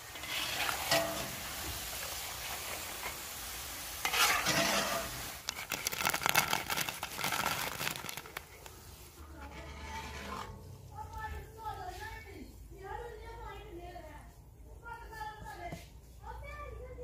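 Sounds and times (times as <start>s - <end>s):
metal skimmer scraping: 0.0s - 1.8s, 4.0s - 6.0s, 9.1s - 11.2s
chips sizzling in hot oil: 0.0s - 11.2s.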